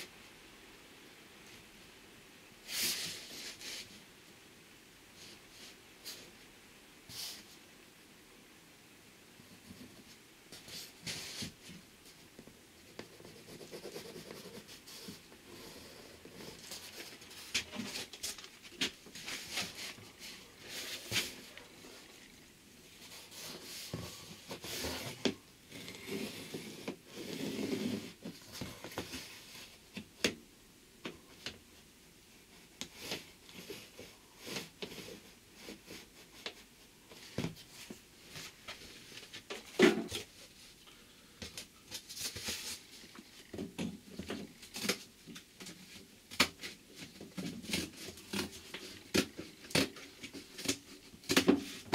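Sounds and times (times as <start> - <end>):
cardboard scraping on wooden frame: 23.0 - 28.4.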